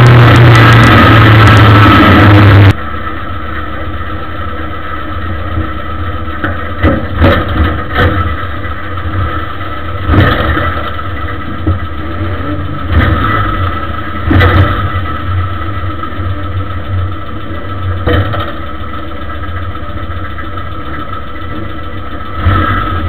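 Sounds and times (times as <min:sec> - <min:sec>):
race car engine from inside: 0:00.0 - 0:02.8.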